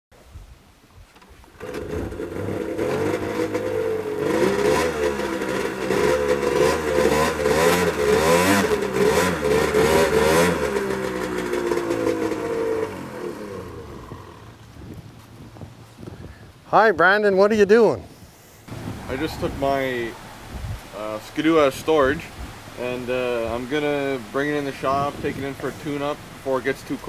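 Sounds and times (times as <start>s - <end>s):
snowmobile engine revving: 1.6s - 14.6s.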